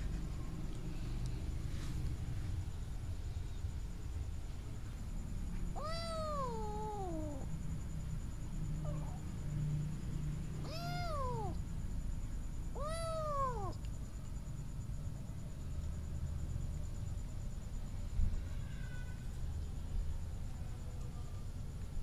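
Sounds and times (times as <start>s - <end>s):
cat meowing: 5.8s - 7.5s, 10.6s - 11.6s, 12.8s - 13.8s.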